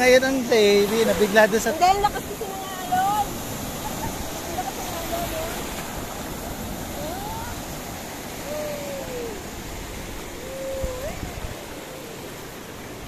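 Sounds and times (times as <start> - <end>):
sea surf breaking: 0.0 - 13.0
short wavering voice sounds: 10.4 - 12.6.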